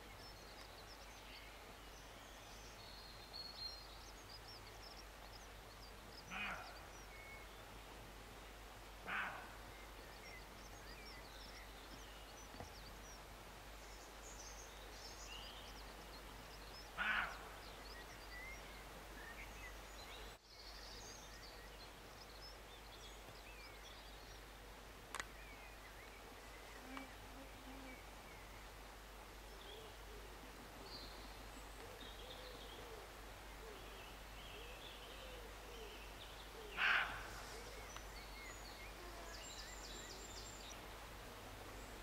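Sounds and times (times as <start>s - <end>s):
roe deer barking: 6.3s - 6.8s, 9.0s - 9.6s, 17.0s - 17.5s, 36.7s - 37.7s.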